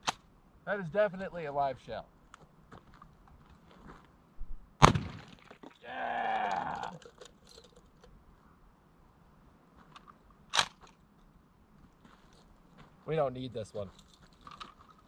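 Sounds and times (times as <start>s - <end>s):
pistol shot: 4.8s - 5.4s
falling voice-like call: 5.8s - 7.0s.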